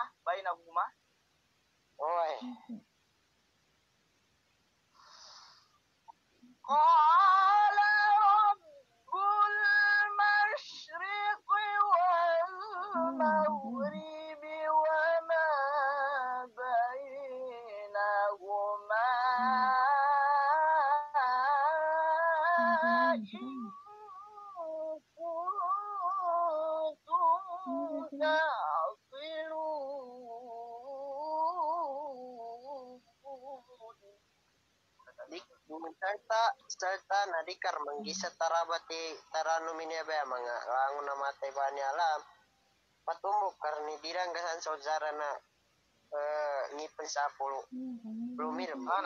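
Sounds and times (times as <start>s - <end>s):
high voice chanting recitation: 6.7s - 34.1s, 35.1s - 42.3s, 46.1s - 49.0s.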